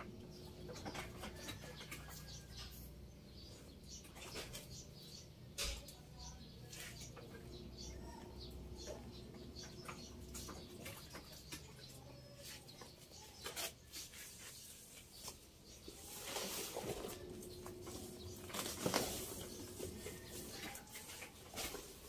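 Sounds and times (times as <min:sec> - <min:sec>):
hands rustling plant and soil: 0:10.3 - 0:22.0.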